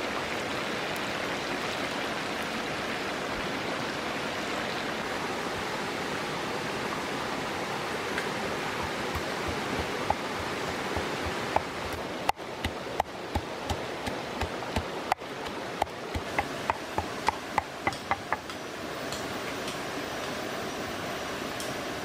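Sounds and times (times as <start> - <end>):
stream rushing: 0.0 - 22.0
pestle knocking in mortar: 8.8 - 14.9, 15.8 - 18.6.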